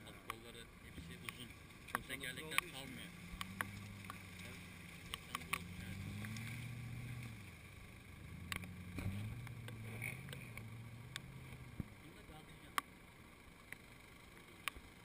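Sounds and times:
engine revving under load: 0:00.8 - 0:12.9
sharp clicks: 0:08.4 - 0:11.9.

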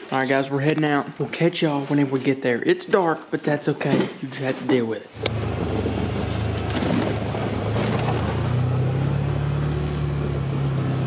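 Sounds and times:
road noise: 0:05.1 - 0:11.0
vehicle engine running: 0:05.2 - 0:11.0.

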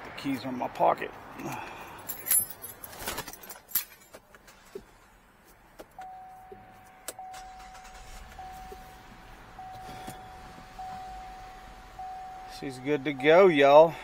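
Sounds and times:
clicks and rustles: 0:02.1 - 0:06.1
dashboard warning chime: 0:06.0 - 0:14.0
car engine starting: 0:06.9 - 0:14.0.

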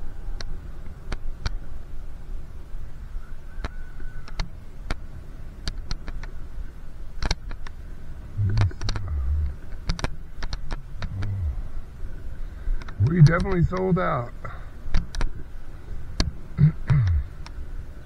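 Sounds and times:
heavy low wind buffets: 0:00.0 - 0:18.0
wind and road rumble: 0:00.0 - 0:18.0
bicycle clicks and rattles: 0:08.6 - 0:11.2.

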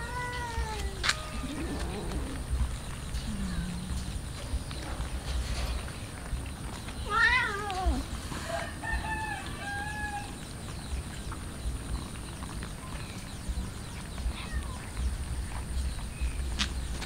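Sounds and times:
cats eating: 0:00.0 - 0:17.0
rooster crowing: 0:08.4 - 0:10.4.

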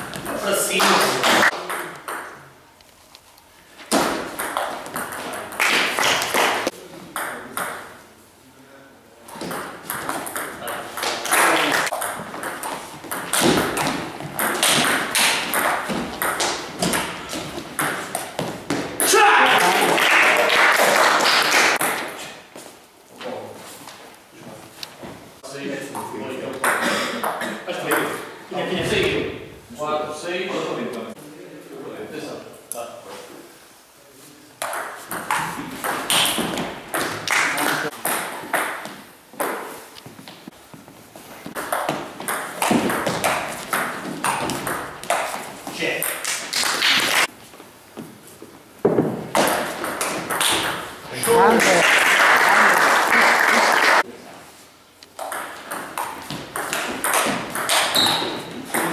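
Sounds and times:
table tennis ball bouncing: 0:01.3 - 0:02.5, 0:03.9 - 0:07.9, 0:09.4 - 0:19.1, 0:21.8 - 0:22.2, 0:34.6 - 0:39.8, 0:41.4 - 0:47.1, 0:48.8 - 0:51.6, 0:55.1 - 0:58.9.

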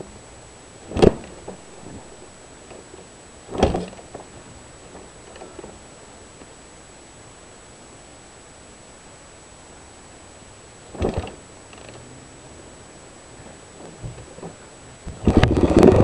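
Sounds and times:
heavy thumps: 0:00.8 - 0:05.8, 0:10.9 - 0:11.4, 0:13.4 - 0:16.0.

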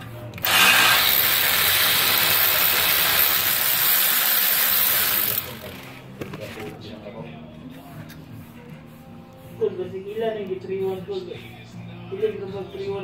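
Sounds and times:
air ratchet hissing and whirring: 0:00.4 - 0:06.0.

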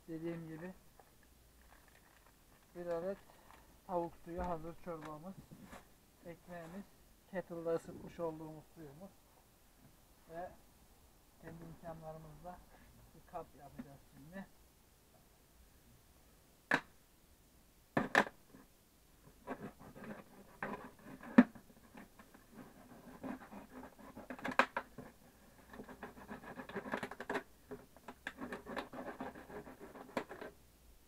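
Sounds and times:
plastic scratching and crinkling: 0:00.4 - 0:03.7, 0:19.3 - 0:30.6
sharp plastic cracks: 0:16.7 - 0:17.0, 0:24.3 - 0:24.9.

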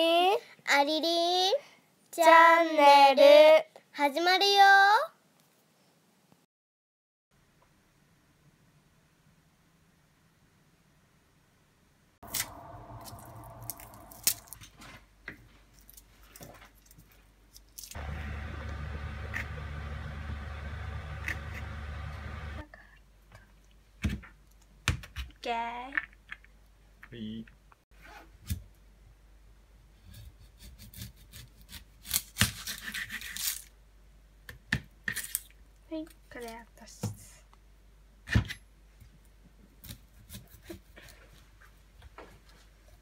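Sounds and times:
steady low hum: 0:12.2 - 0:14.6, 0:18.0 - 0:22.6
knife scraping onion skin: 0:30.0 - 0:33.7, 0:39.8 - 0:41.2.

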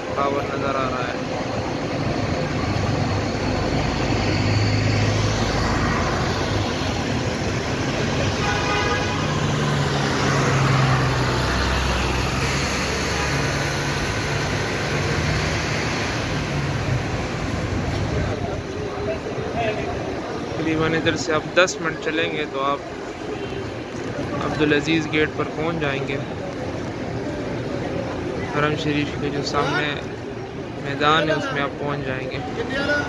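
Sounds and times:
traffic engine and tyre noise: 0:00.0 - 0:33.0
vehicle horn: 0:08.3 - 0:09.6.

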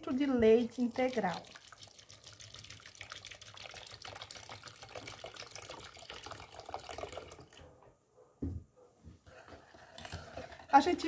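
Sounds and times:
milk pouring into metal saucepan: 0:00.2 - 0:07.6.

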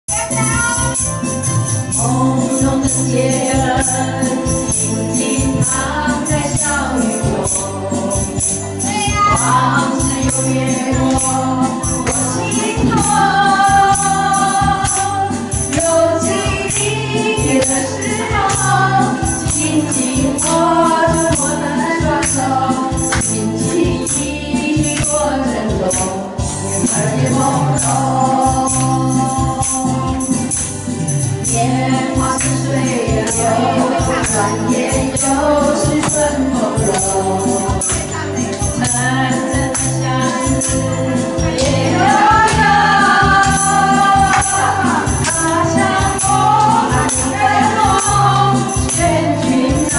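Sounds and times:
karaoke backing track: 0:00.0 - 0:49.9
women singing into microphones: 0:00.1 - 0:49.9.

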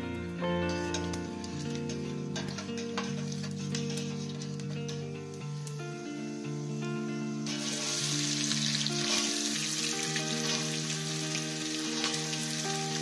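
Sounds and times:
acoustic guitar music: 0:00.0 - 0:13.0
onions sizzling in hot oil: 0:05.4 - 0:13.0.

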